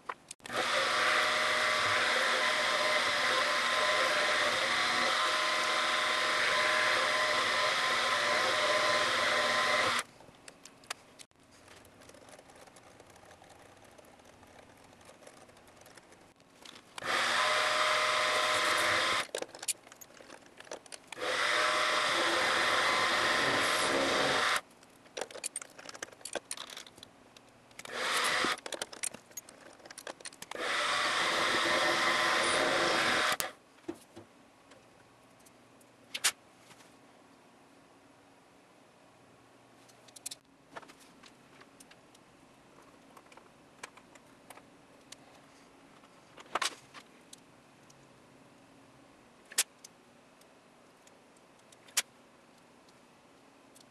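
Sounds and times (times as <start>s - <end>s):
milling machine drilling metal: 0.5s - 10.0s, 17.0s - 19.3s, 21.2s - 24.6s, 27.9s - 28.6s, 30.6s - 33.5s.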